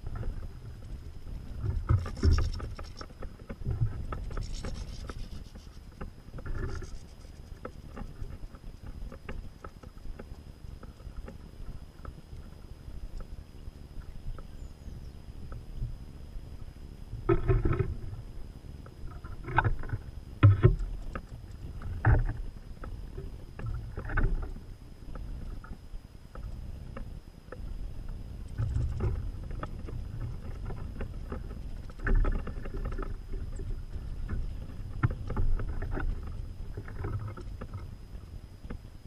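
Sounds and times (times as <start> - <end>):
wind rumbling on microphone: 0.0 - 39.0
knocks and rustles: 1.6 - 10.3.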